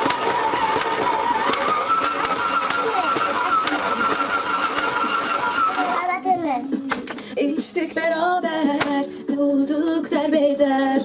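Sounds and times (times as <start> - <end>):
dough hook clicks and knocks: 0.0 - 4.9
stand mixer motor whine: 0.0 - 6.0.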